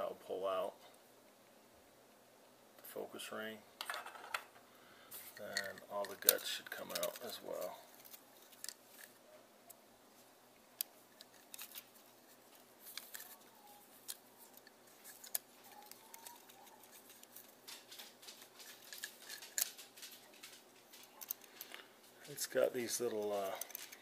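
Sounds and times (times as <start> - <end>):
plastic lens clicks and ticks: 5.3 - 9.8, 14.0 - 21.9, 23.0 - 24.0.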